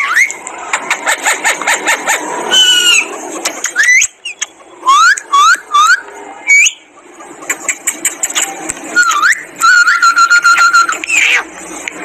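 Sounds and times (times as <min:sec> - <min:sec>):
parakeet calling: 0:09.0 - 0:11.5.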